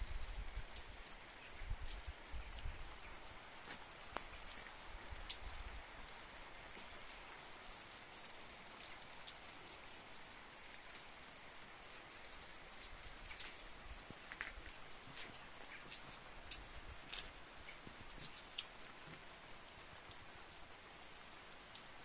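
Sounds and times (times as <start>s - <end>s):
faint rain falling: 0.0s - 22.0s
rain drop ticks: 0.0s - 22.0s.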